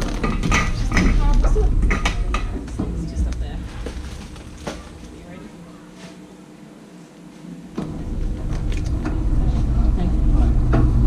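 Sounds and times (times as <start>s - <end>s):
trolley wheels rumbling: 0.0s - 5.3s.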